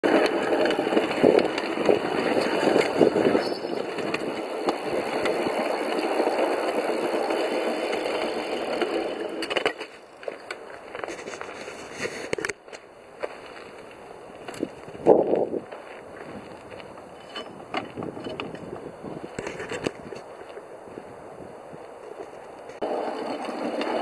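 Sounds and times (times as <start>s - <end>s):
steel wheels rattling on rails: 0.0s - 12.5s, 14.5s - 20.9s, 22.0s - 24.0s.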